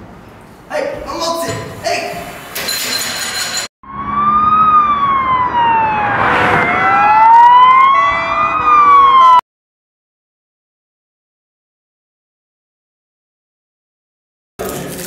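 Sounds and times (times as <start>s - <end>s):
siren wailing: 3.8s - 9.4s.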